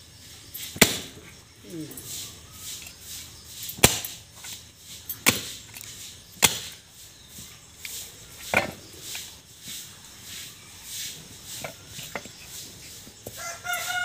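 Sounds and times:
knife chopping into wood block: 3.8 - 4.2.

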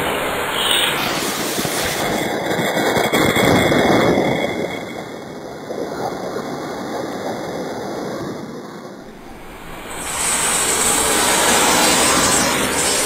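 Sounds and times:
spark fountain hissing and crackling: 9.1 - 13.0.

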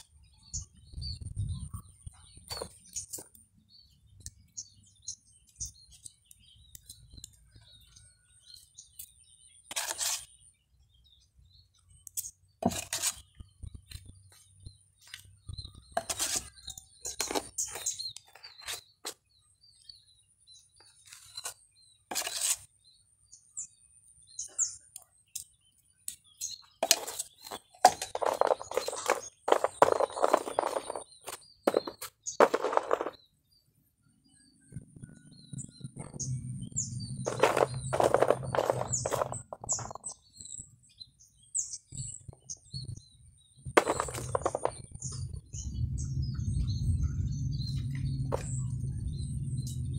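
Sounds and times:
birds chirping: 0.0 - 49.9
trowel scraping wet cement: 8.9 - 10.5, 12.1 - 13.4, 15.8 - 19.3, 21.0 - 22.9, 26.8 - 33.2, 37.3 - 40.0.

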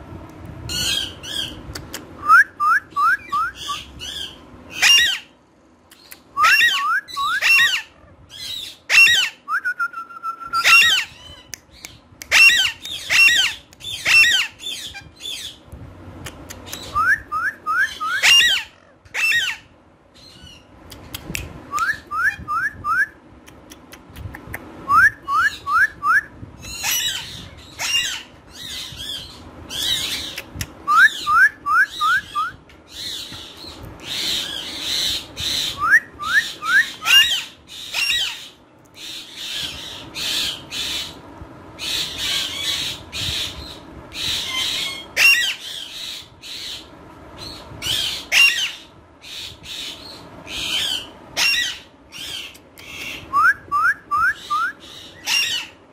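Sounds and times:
parakeets squawking and chirping: 0.7 - 1.6, 3.6 - 5.4, 6.4 - 9.4, 10.6 - 15.6, 17.9 - 20.7, 26.6 - 30.4, 32.9 - 35.8, 36.4 - 41.2, 41.8 - 53.3, 54.4 - 55.8.

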